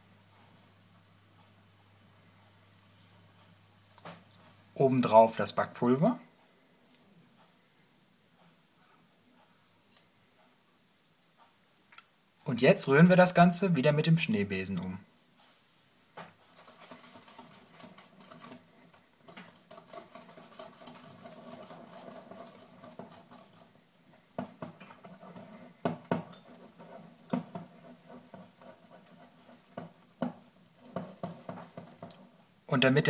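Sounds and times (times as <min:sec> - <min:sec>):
whisk swishing in batter: 0:16.4 - 0:33.0
whisk knocking on bowl: 0:19.3 - 0:23.7, 0:24.3 - 0:32.3.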